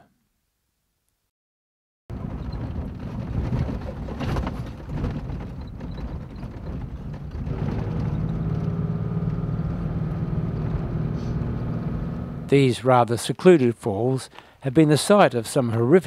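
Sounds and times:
tyres on gravel road: 0:02.1 - 0:15.2
car engine: 0:05.3 - 0:12.5.

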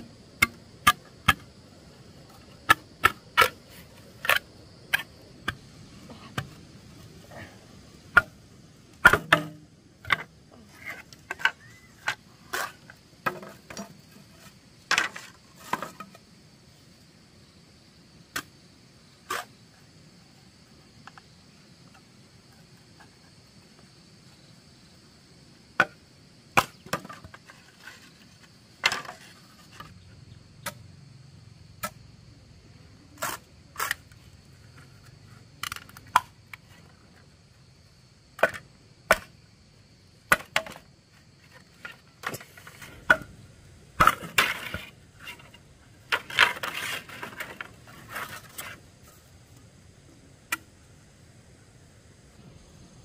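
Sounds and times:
scraping of wood: 0:44.0 - 0:48.8.

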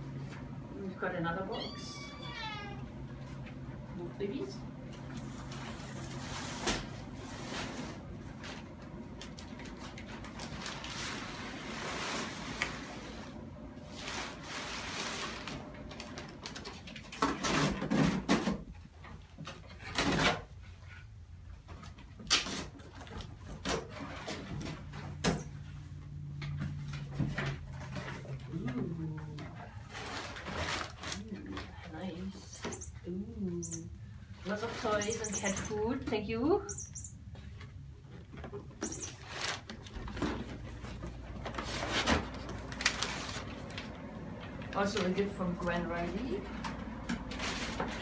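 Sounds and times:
short high chirp: 0:32.5 - 0:33.0, 0:35.0 - 0:35.7, 0:36.7 - 0:37.2, 0:38.8 - 0:39.2.

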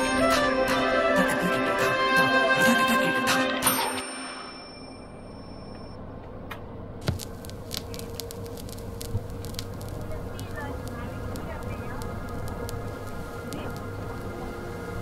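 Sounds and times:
music: 0:00.0 - 0:04.6.

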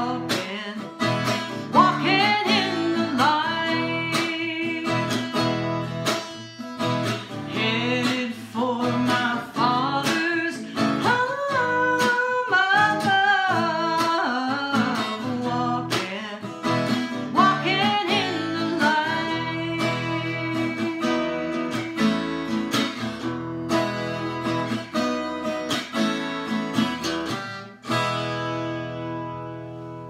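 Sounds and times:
woman singing: 0:00.0 - 0:06.4, 0:07.2 - 0:23.1
strummed acoustic guitar: 0:00.0 - 0:30.0.

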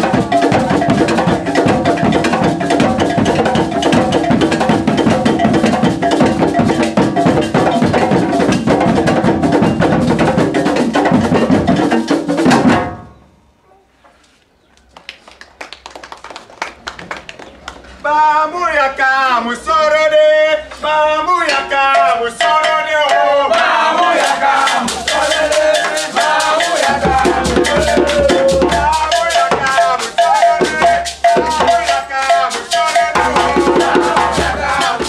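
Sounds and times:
hand drums playing dance rhythm: 0:00.0 - 0:13.0, 0:21.9 - 0:35.0.

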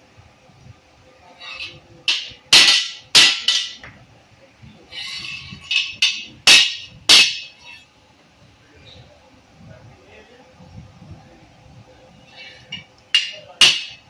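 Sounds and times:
hammer striking steel tube: 0:02.1 - 0:03.8, 0:05.7 - 0:07.6, 0:13.1 - 0:14.0.

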